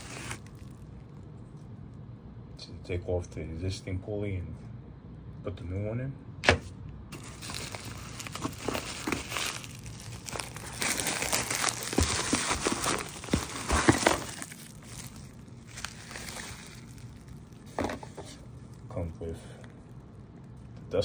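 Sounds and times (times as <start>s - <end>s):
bubble wrap crinkling: 0.0s - 1.1s, 7.1s - 20.8s.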